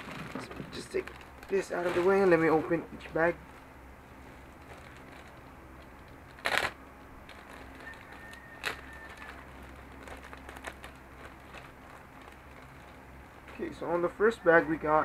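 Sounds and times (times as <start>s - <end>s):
plastic bag crackling: 0.0s - 14.8s
plastic bag rustling: 0.0s - 14.8s.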